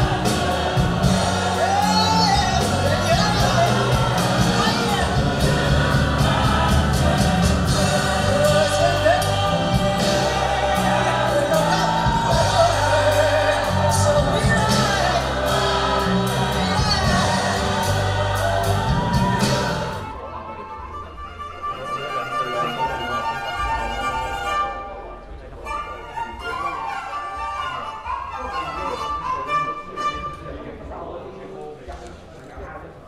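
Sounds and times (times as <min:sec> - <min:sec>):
song with singing and bass: 0:00.0 - 0:20.3.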